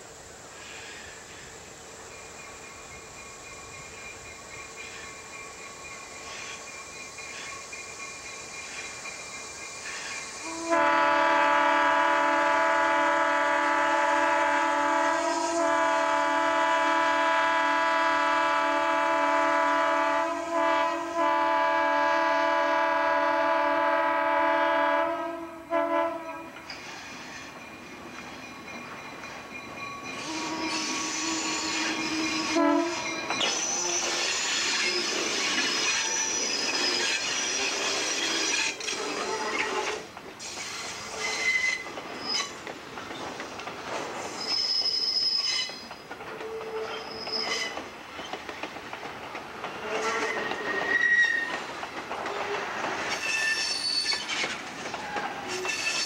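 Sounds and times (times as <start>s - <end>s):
train wheels clattering and squealing: 0.6s - 10.5s, 26.2s - 56.0s
locomotive air horn blasts: 10.4s - 26.6s, 30.2s - 33.2s.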